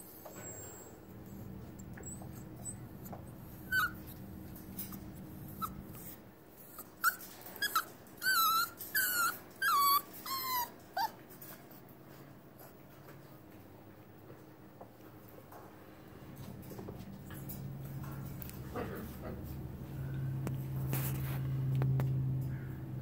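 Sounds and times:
puppy whining: 0.0s - 11.9s.

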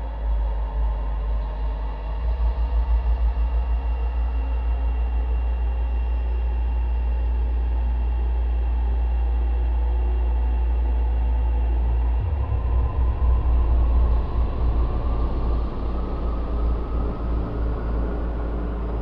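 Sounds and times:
haze of noise: 0.0s - 19.0s
sub-bass drone music: 0.0s - 19.0s.

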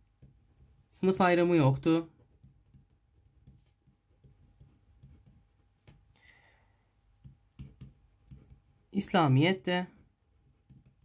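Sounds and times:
pen writing on paper: 2.3s - 5.5s, 7.2s - 8.7s, 10.3s - 11.0s.

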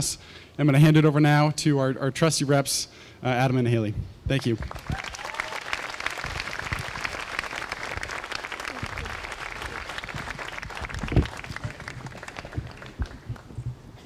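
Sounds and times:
audience applauding: 4.6s - 13.5s.

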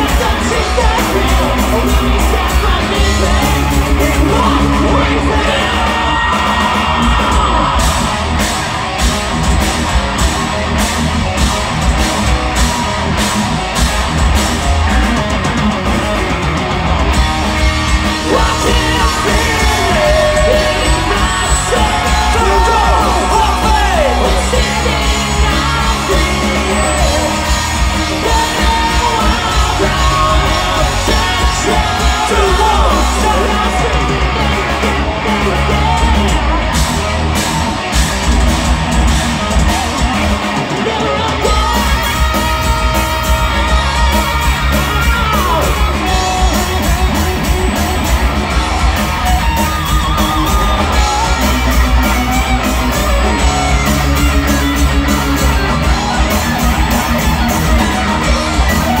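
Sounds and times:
heavy rock band playing: 0.0s - 59.0s
electric guitar solo: 39.1s - 59.0s.

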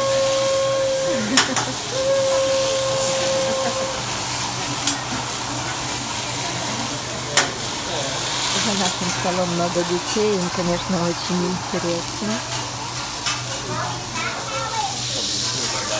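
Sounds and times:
high held note: 0.0s - 4.3s
food sizzling on a griddle: 0.0s - 15.9s.

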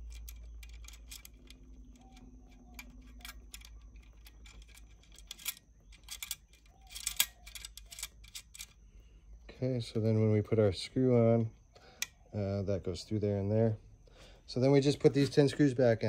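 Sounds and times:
light metallic clicks of nut: 0.0s - 8.8s.

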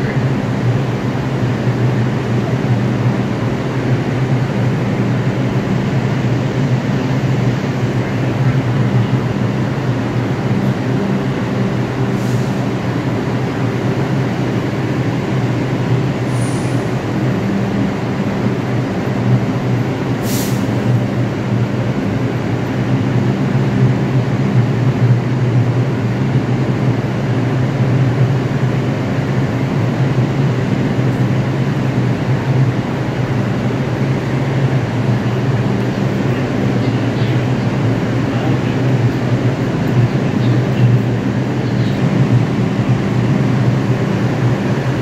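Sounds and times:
subway train humming: 0.0s - 45.0s
air hisses: 20.2s - 20.8s.

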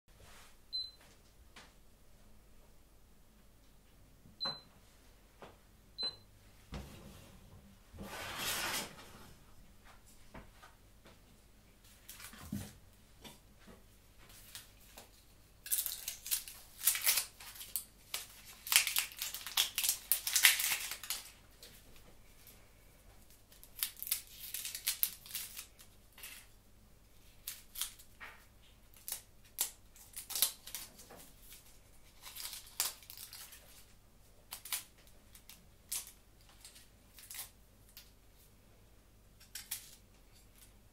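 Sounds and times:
packaging crinkling and tearing: 14.3s - 22.0s, 23.3s - 26.6s, 27.2s - 38.2s.

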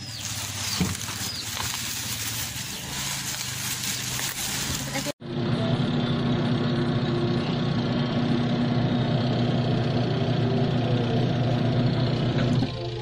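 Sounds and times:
washing machine motor hum: 4.7s - 13.0s.

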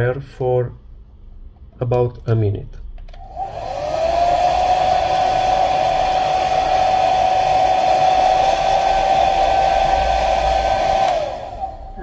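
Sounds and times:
hair dryer running: 3.2s - 12.0s.

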